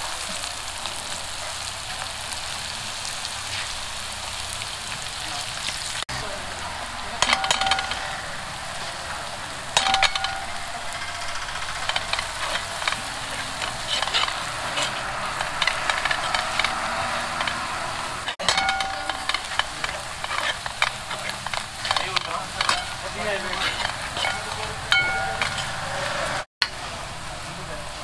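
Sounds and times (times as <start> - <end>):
food sizzling in pan: 0.0 - 28.0
metal utensil scraping pan: 6.2 - 26.5.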